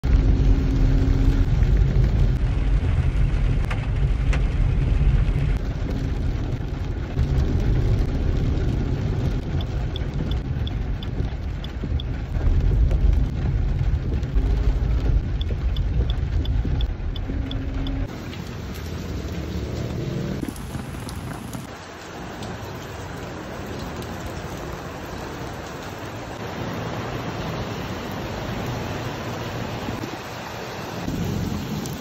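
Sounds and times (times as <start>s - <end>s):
engine and road noise in rain: 0.0s - 32.0s
turn signal ticking: 7.5s - 18.4s.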